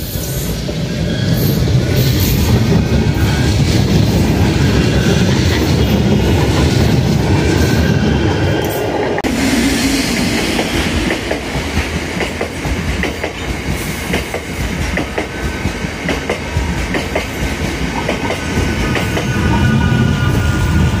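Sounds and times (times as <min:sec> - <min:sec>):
freight train rumbling past: 0:00.0 - 0:21.0
wheels clickety-clack on rail joints: 0:10.6 - 0:21.0.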